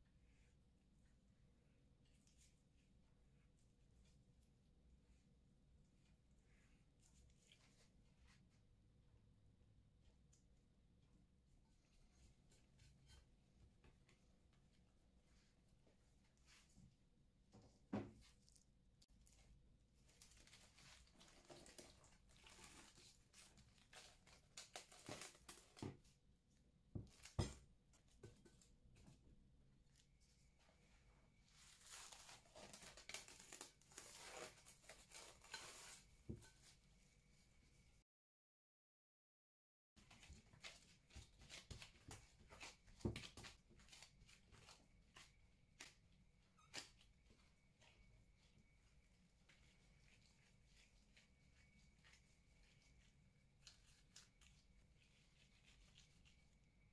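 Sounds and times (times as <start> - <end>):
plastic cling film crinkling: 19.1 - 26.0, 31.5 - 36.1.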